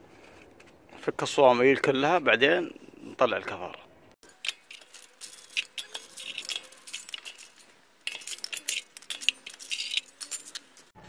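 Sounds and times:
wheel wrench clicking: 0:04.2 - 0:10.9.

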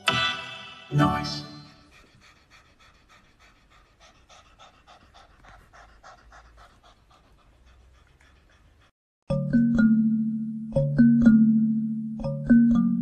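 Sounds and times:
cat panting: 0:01.5 - 0:09.0.

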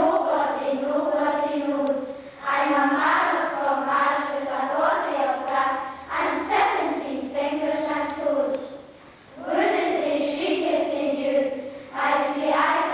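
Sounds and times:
children's choir singing: 0:00.0 - 0:08.7, 0:09.4 - 0:12.9.

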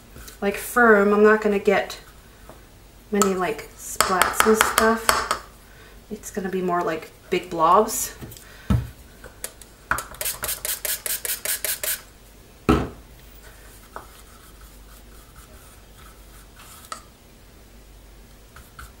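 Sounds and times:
paint stirred scraping cup: 0:10.1 - 0:12.0.

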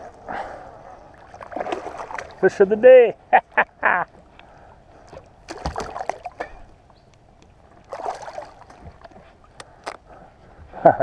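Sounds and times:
water splashing and sloshing: 0:00.0 - 0:02.8, 0:03.5 - 0:10.7.

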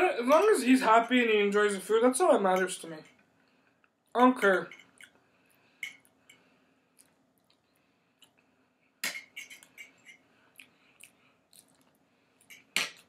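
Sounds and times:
quiet chewing: 0:05.0 - 0:08.5, 0:09.7 - 0:13.0.

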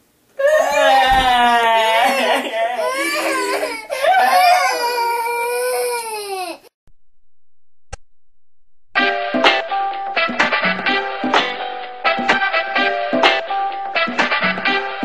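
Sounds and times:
baby crying: 0:00.4 - 0:06.7
music: 0:09.0 - 0:15.0.

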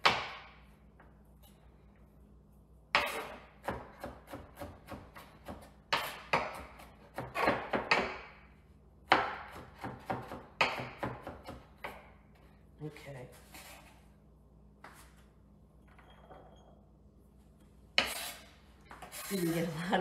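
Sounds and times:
knife chopping on cutting board: 0:02.9 - 0:08.4, 0:09.1 - 0:12.0.

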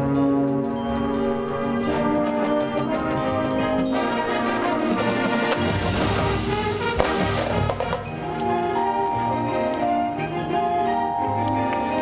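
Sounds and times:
brass chords: 0:00.0 - 0:12.0
heavy drums and percussion: 0:01.2 - 0:08.4.

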